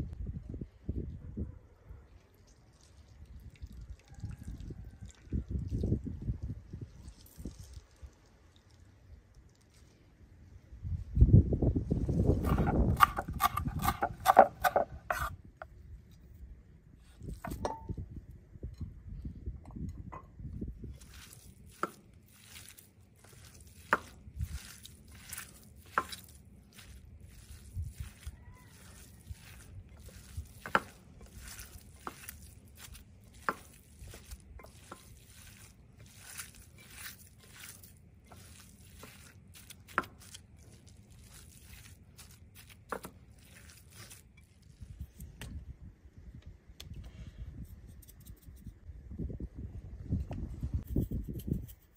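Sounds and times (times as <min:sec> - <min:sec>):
wet squelching of vegetables: 0:06.7 - 0:10.6, 0:20.8 - 0:45.3
meat scraped into glass bowl: 0:12.3 - 0:15.4, 0:21.0 - 0:44.6.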